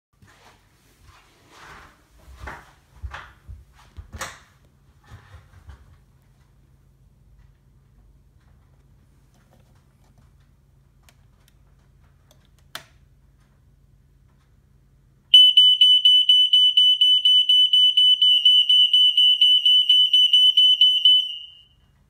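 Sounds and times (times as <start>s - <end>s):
smoke alarm beeping: 15.3s - 21.9s.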